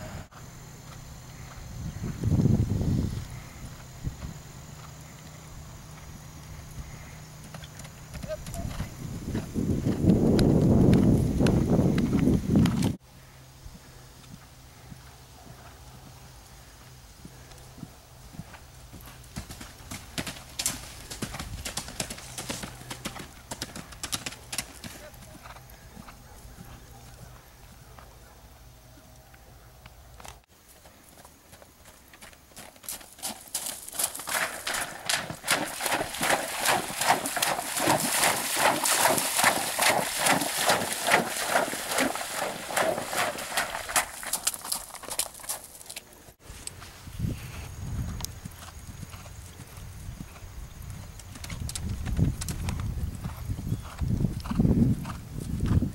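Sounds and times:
horse hooves cantering on turf: 7.4 - 13.0, 14.2 - 16.4, 17.2 - 28.3, 29.0 - 46.1, 48.0 - 55.9
hooves splashing in water: 33.6 - 46.0.

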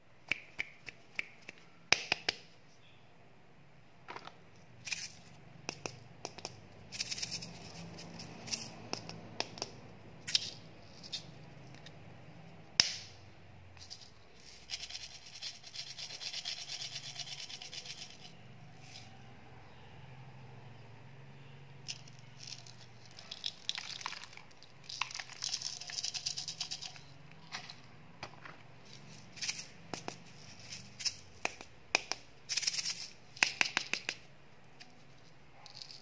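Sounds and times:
candy grains rattling: 13.8 - 19.1, 21.9 - 27.8, 28.8 - 31.6, 32.5 - 33.3.

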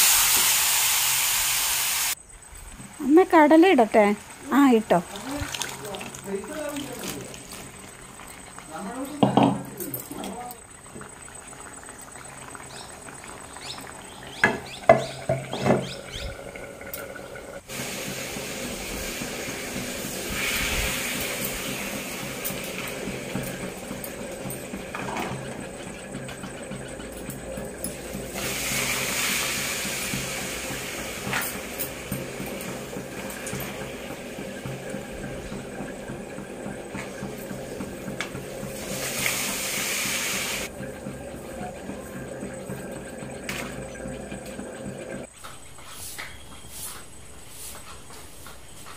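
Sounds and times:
batter sizzling in a pan: 0.0 - 2.2, 3.9 - 16.1, 17.6 - 26.6, 27.4 - 35.7, 37.0 - 40.7.

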